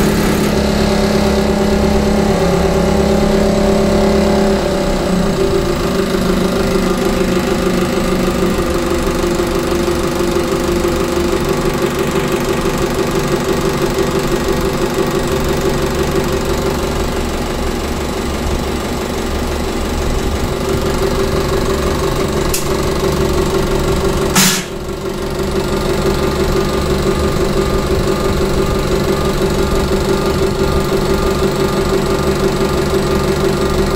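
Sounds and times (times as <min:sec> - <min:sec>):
injection pump test bench running: 0:00.0 - 0:33.9
burst of hiss: 0:24.4 - 0:24.8.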